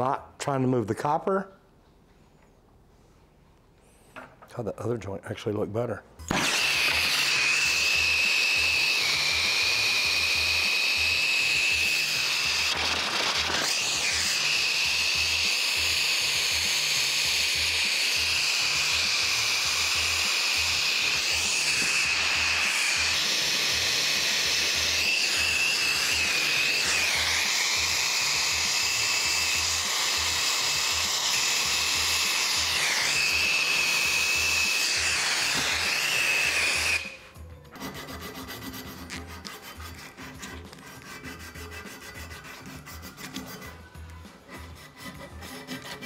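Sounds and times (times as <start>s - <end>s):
soldering torch hissing: 6.3s - 37.2s
background music: 26.1s - 46.0s.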